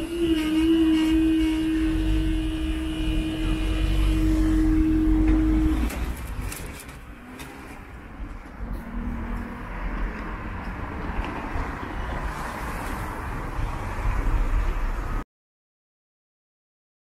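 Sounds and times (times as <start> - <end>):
barrier motor humming: 0.0 - 9.2
faint outdoor background: 0.0 - 15.2.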